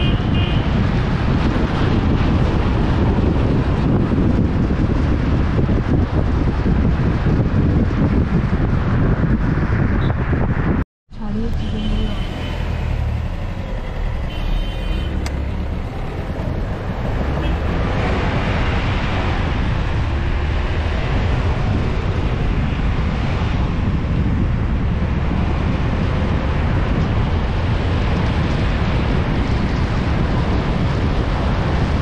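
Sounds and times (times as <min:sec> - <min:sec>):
car horn beep: 0:00.0 - 0:00.8, 0:11.4 - 0:13.2, 0:14.0 - 0:15.6, 0:17.3 - 0:17.7
car engine and road rumble: 0:00.0 - 0:32.0
wind and tyre noise: 0:00.0 - 0:32.0.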